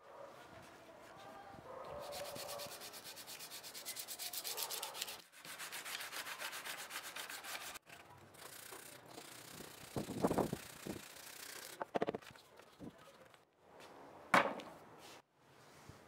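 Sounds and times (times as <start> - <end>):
sandpaper rubbing on wood: 2.0 - 7.8.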